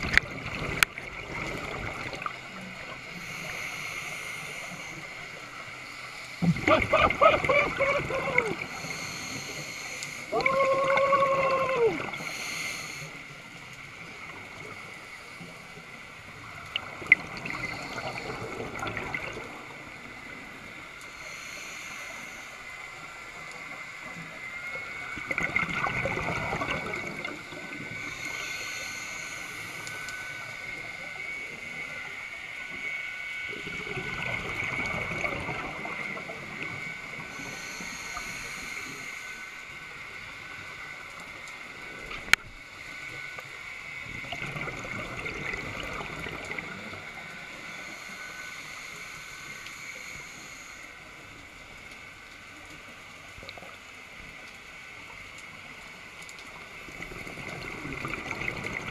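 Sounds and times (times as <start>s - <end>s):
exhaled bubbles rushing: 0.0s - 2.5s, 25.2s - 28.0s, 33.6s - 36.8s, 44.1s - 47.0s, 56.9s - 58.9s
regulator inhalation hiss: 3.0s - 6.4s, 8.4s - 10.4s, 11.8s - 14.0s, 20.3s - 23.8s, 27.4s - 32.2s, 36.6s - 41.0s, 47.3s - 51.4s.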